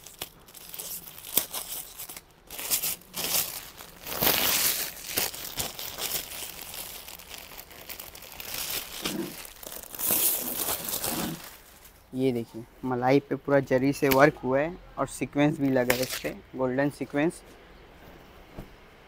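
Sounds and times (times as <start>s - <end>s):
plastic wrapping crinkling: 0.0s - 12.1s.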